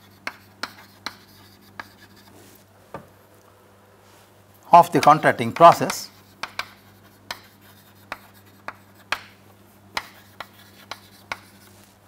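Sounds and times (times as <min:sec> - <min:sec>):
chalk tapping on chalkboard: 0:00.0 - 0:02.3, 0:05.0 - 0:11.8
chalk scratching: 0:00.0 - 0:02.6, 0:05.6 - 0:09.3, 0:10.0 - 0:12.0.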